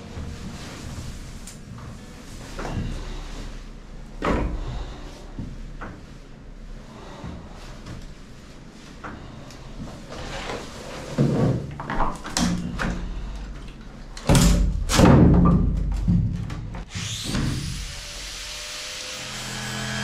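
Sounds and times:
wooden thuds and clunks: 0:14.2 - 0:17.6.

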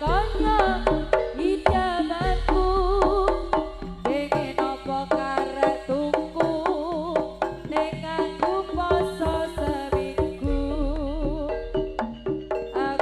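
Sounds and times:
rapid hand drum strokes: 0:00.0 - 0:10.7
pitched percussion: 0:00.0 - 0:13.0
wavering melody line: 0:08.6 - 0:13.0.

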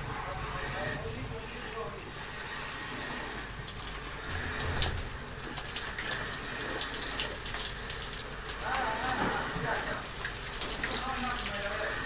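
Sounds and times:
fish sizzling in hot oil: 0:04.0 - 0:12.0.

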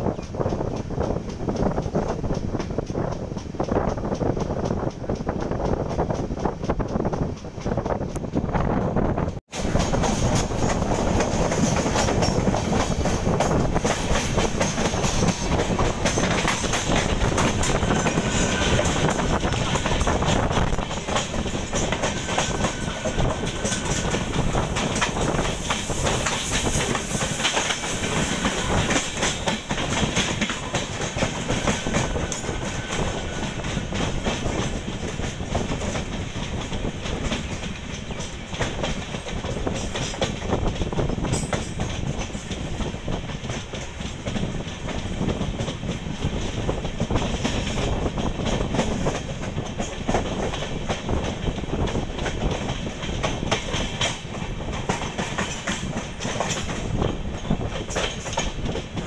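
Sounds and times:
train wheels clacking on rails: 0:00.0 - 0:59.0
electric train passing: 0:09.5 - 0:46.9.

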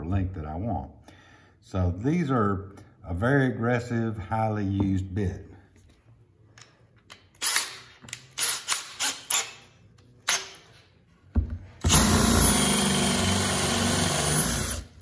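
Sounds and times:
cordless drill short bursts: 0:11.8 - 0:15.0
drill boring into wood: 0:11.8 - 0:15.0.

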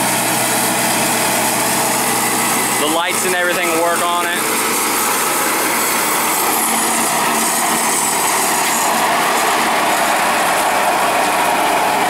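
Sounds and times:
mower cutting grass: 0:00.0 - 0:12.0
tractor diesel engine driving past: 0:00.0 - 0:12.0.

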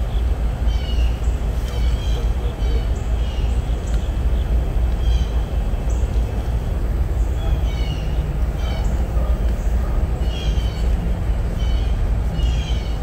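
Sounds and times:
steady low rumble: 0:00.0 - 0:13.0
small birds chirping: 0:00.2 - 0:13.0.

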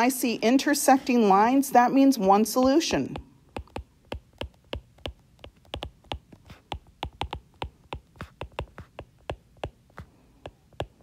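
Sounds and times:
stylus clicking on glass screen: 0:03.1 - 0:11.0.

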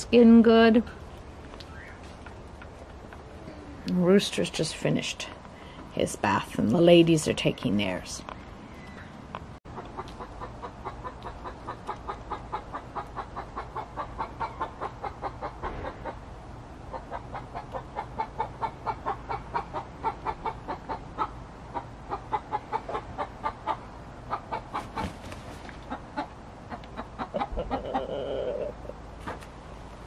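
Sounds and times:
chickens clucking: 0:08.2 - 0:29.4.

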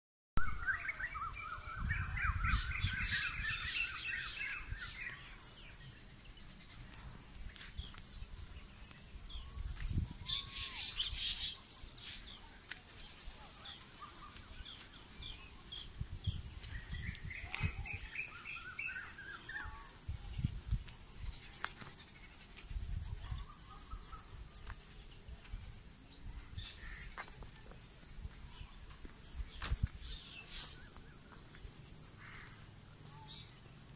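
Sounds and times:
high-pitched insect chorus: 0:00.4 - 0:33.9.

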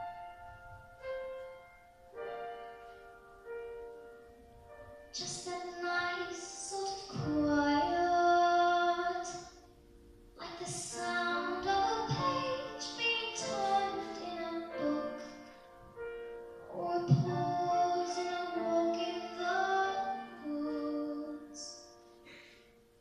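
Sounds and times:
piano accompaniment: 0:00.0 - 0:23.0
person singing: 0:10.4 - 0:15.4, 0:16.7 - 0:21.8.

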